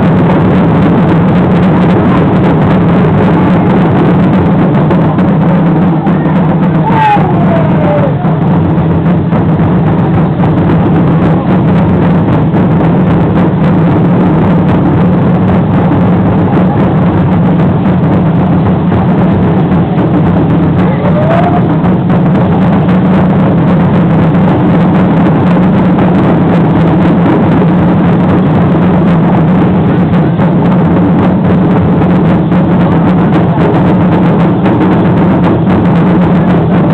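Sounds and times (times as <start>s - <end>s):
loud drumming: 0.0s - 36.9s
rising tone: 0.0s - 36.9s.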